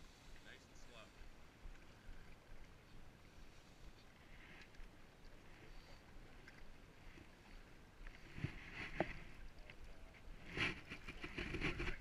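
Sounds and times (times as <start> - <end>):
small waves lapping: 0.0 - 12.0.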